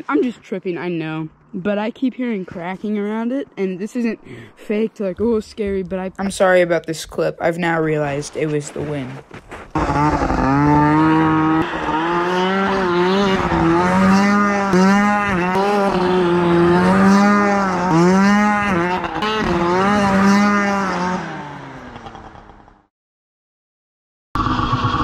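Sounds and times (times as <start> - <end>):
snowmobile engine revving: 7.6 - 22.8, 24.4 - 25.0.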